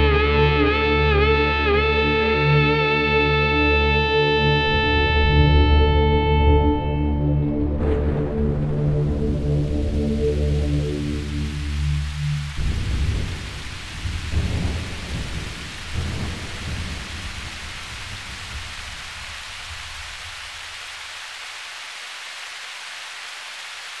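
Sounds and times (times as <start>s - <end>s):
thunder rolling: 7.6s - 20.4s
steady rain: 7.6s - 24.0s.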